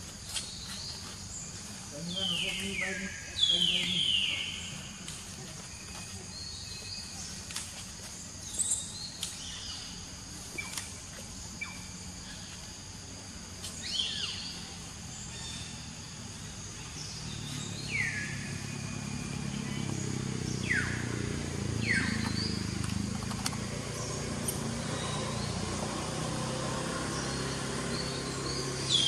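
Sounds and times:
high insect drone: 0:00.0 - 0:29.0
low engine hum: 0:00.0 - 0:29.0
bird chirps: 0:00.2 - 0:07.8, 0:08.4 - 0:12.7, 0:13.6 - 0:26.3, 0:27.0 - 0:29.0.

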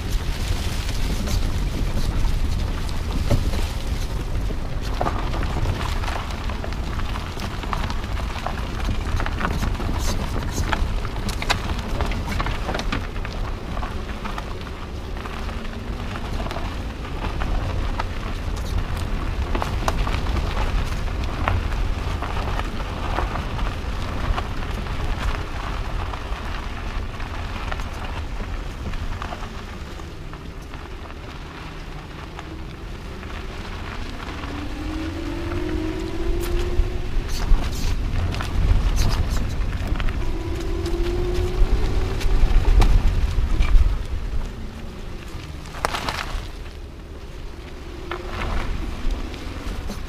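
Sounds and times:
low rumble: 0:00.0 - 0:50.0
small stones ticking: 0:00.0 - 0:50.0
tyres crunching on gravel: 0:00.0 - 0:50.0
rising hum: 0:32.8 - 0:38.8.

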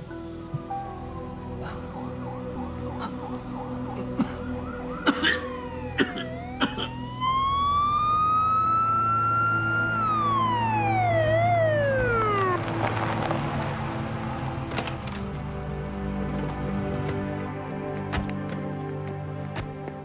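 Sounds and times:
police siren wailing: 0:01.4 - 0:13.4.

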